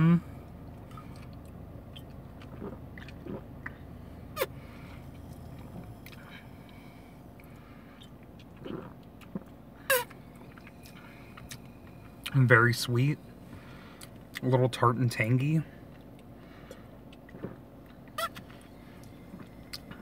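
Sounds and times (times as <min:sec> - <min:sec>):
low steady hum: 0:00.0 - 0:20.0
lip smacks and mouth clicks: 0:00.6 - 0:03.8, 0:16.0 - 0:20.0.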